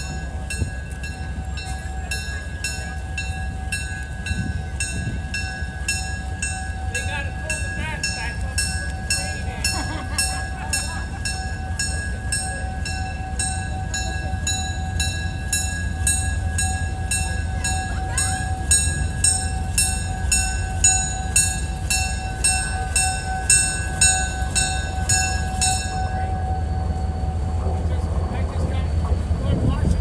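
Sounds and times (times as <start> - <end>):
bell ringing: 0.0 - 27.2
locomotive engine rumbling: 0.0 - 30.0.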